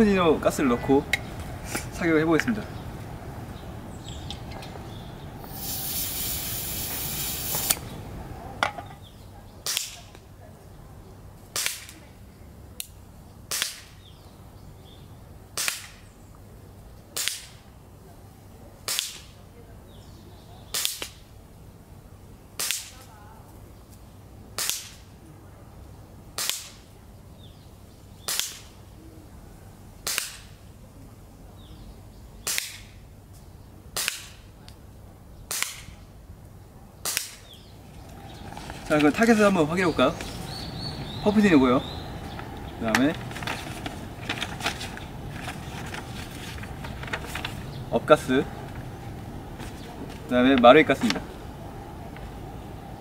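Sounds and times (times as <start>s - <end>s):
gas hissing into magazine: 5.4s - 8.0s.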